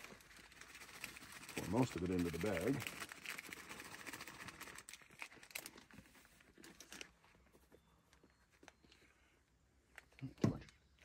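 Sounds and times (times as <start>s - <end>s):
batter pouring: 0.0s - 5.8s
plastic bag crinkling: 0.0s - 7.4s.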